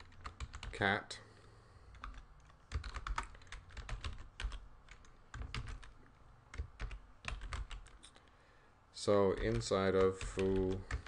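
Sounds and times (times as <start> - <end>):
typing on computer keyboard: 0.0 - 0.8, 1.9 - 8.1, 9.3 - 11.0.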